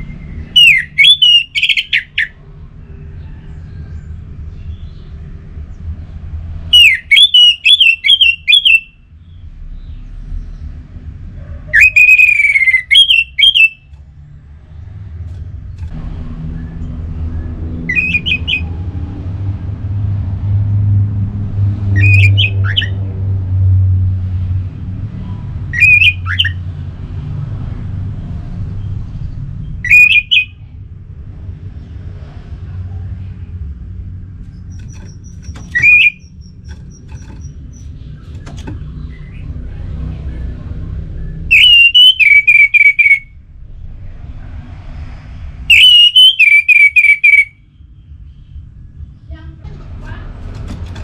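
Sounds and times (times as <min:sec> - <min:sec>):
thrush singing whistled notes: 0:00.0 - 0:02.4, 0:06.7 - 0:09.1, 0:11.8 - 0:13.9, 0:25.7 - 0:26.6, 0:29.8 - 0:30.6, 0:34.6 - 0:38.1, 0:41.2 - 0:43.4, 0:45.6 - 0:48.0
low rumble: 0:13.9 - 0:22.0.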